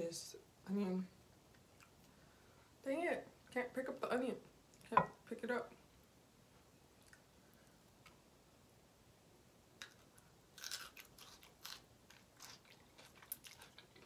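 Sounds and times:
chewing close to microphone: 10.6s - 14.0s.

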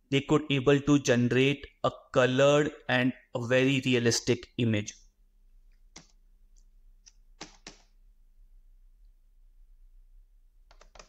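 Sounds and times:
computer mouse clicks: 5.7s - 7.9s, 10.7s - 11.0s.

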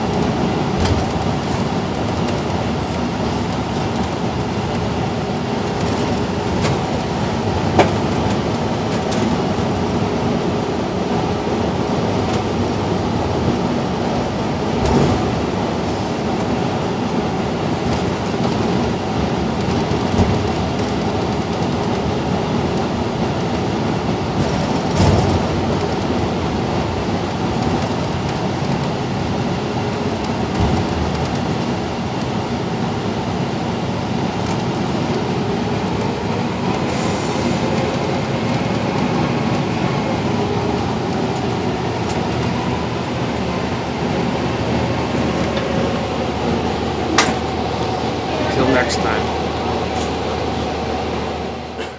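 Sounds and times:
sharp knocks and rattles: 0.0s - 4.9s, 19.6s - 22.1s, 24.4s - 26.1s, 27.6s - 29.0s, 29.9s - 31.6s
bus drivetrain and road rumble: 0.0s - 51.9s.

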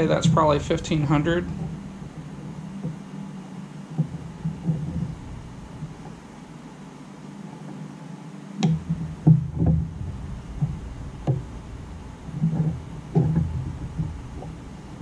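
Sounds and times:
handling noise: 0.0s - 6.9s, 8.6s - 15.0s
probes knocking on plastic: 8.6s - 11.6s, 12.3s - 14.8s.

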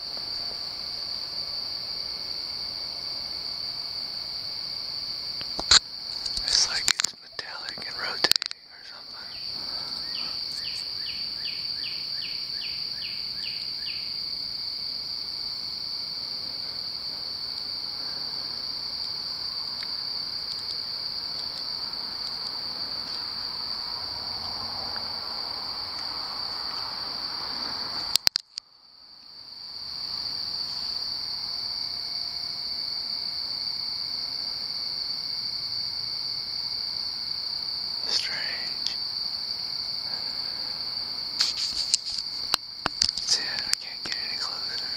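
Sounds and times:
cricket chirping: 0.0s - 44.9s
crickets chorus: 0.0s - 44.9s
sharp clicks: 5.4s - 9.1s, 28.1s - 28.6s, 41.4s - 44.9s.

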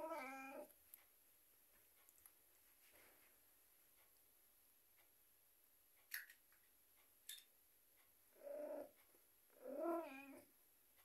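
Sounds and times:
cat yowling: 9.6s - 10.4s.

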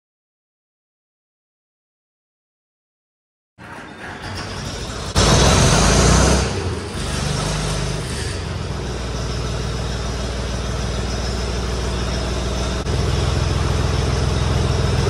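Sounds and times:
tractor diesel engine idling: 3.6s - 15.0s.

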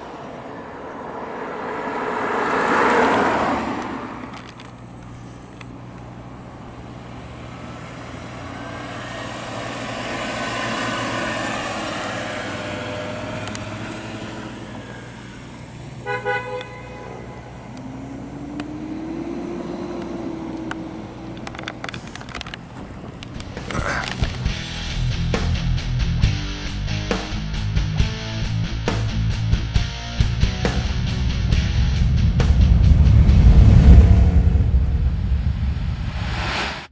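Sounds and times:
engine note rising: 0.0s - 4.6s, 6.2s - 16.0s, 17.1s - 21.9s, 28.4s - 36.9s
car driving past: 0.0s - 4.7s, 6.8s - 16.0s, 30.2s - 36.9s
car horn toots: 16.0s - 17.6s.

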